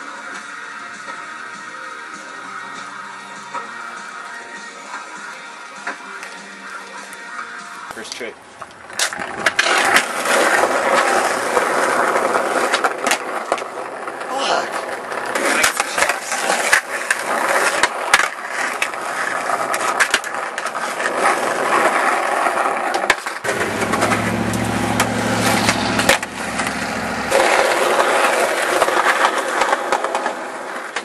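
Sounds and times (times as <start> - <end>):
skateboard rolling over rough ground: 0.0 - 31.0
low steady rumble: 23.5 - 27.4.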